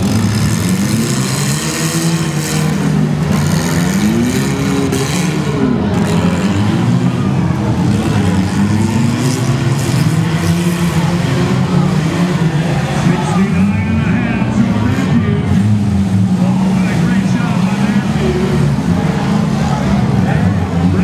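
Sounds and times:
car engines revving: 0:00.0 - 0:21.0.

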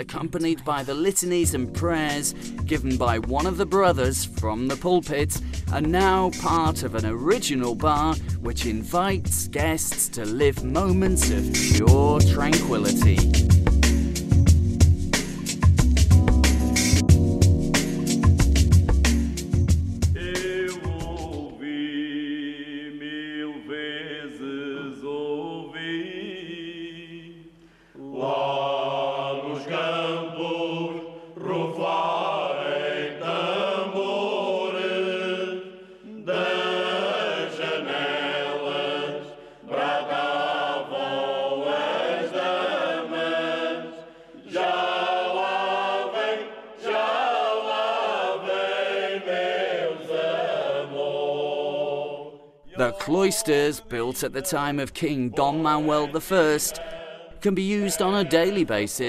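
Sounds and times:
choir-like voices chanting: 0:20.2 - 0:54.8, 0:55.4 - 0:59.0.

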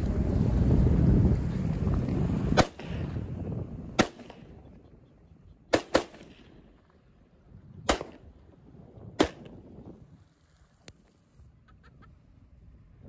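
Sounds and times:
wind rumble on microphone: 0:00.0 - 0:13.0
rifle shots: 0:02.6 - 0:03.1, 0:04.0 - 0:04.6, 0:05.7 - 0:06.7, 0:07.9 - 0:08.3, 0:09.2 - 0:09.6.

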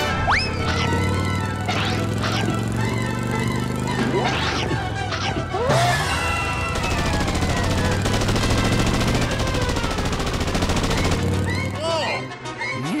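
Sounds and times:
sliding whistle cartoon effects: 0:00.0 - 0:02.5, 0:03.9 - 0:07.6
cartoon motorcycle engine putter: 0:00.0 - 0:11.8
background music: 0:00.0 - 0:13.0.

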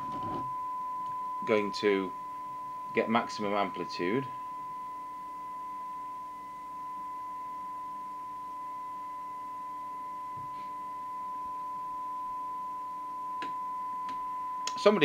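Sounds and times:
radio test tone: 0:00.0 - 0:04.6.

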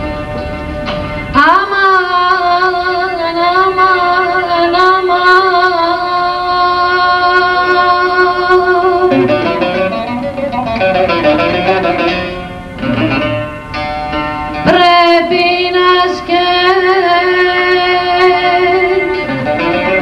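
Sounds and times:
lute: 0:00.0 - 0:20.0
woman singing: 0:01.4 - 0:09.5, 0:14.6 - 0:20.0.

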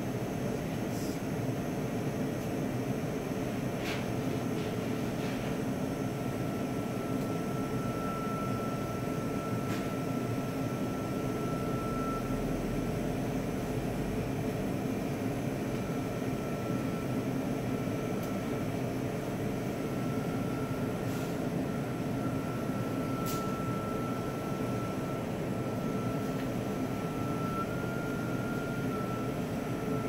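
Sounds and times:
steady mechanical hum: 0:00.0 - 0:30.0
faint high whine: 0:06.1 - 0:12.8, 0:21.6 - 0:30.0.

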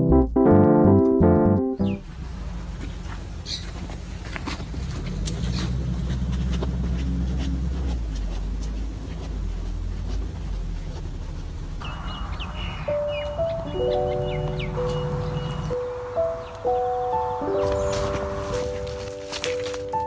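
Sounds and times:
low sustained chords: 0:11.6 - 0:19.8
bell-like melody: 0:12.6 - 0:19.0.

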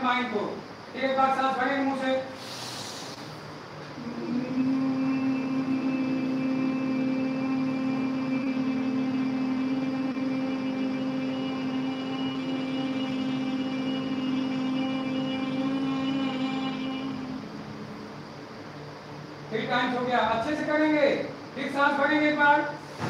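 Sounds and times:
group humming low drone: 0:02.5 - 0:19.6.

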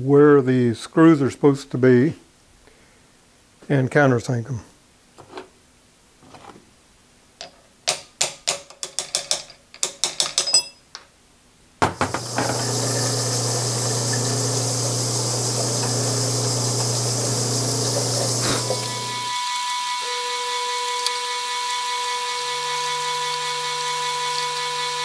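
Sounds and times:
metallic clicks and knocks: 0:07.4 - 0:11.1
drill press running: 0:12.0 - 0:25.0.

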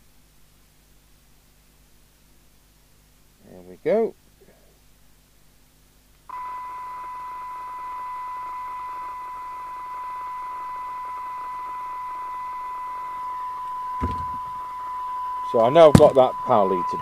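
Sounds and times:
faint hiss: 0:00.0 - 0:17.0
steady test tone: 0:06.3 - 0:17.0.

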